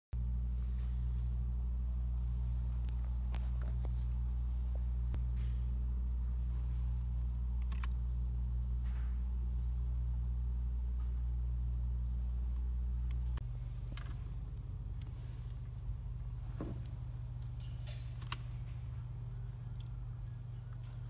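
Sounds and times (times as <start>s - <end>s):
low machine hum: 0.2s - 21.0s.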